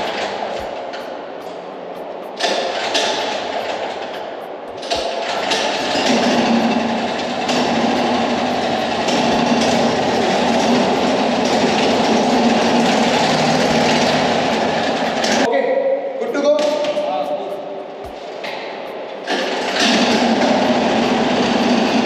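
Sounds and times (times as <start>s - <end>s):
buggy engine clattering: 2.3s - 15.5s, 19.2s - 22.0s.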